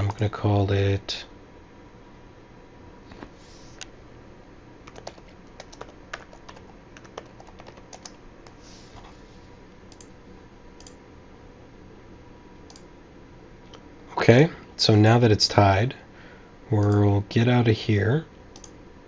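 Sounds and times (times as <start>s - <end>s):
keyboard typing: 4.8s - 9.1s.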